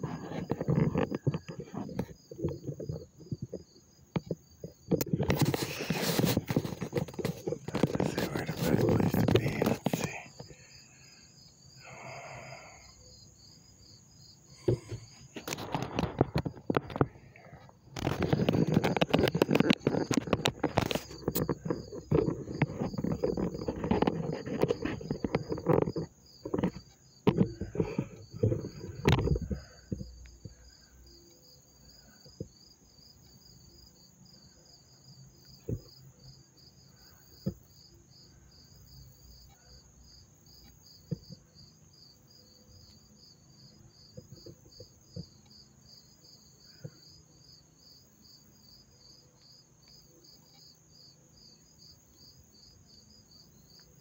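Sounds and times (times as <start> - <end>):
crickets chirping: 0.0 - 54.0
high insect trill: 0.0 - 54.0
loud rustling and knocks: 4.2 - 10.2, 14.6 - 30.1.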